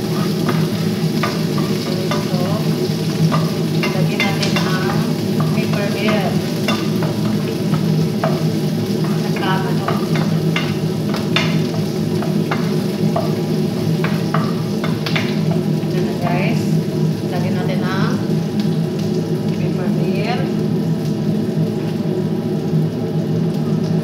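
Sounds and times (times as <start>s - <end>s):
spatula scraping a pan: 0.0s - 15.7s
steady low hum: 0.0s - 23.7s
garlic sizzling in hot oil: 0.0s - 24.0s.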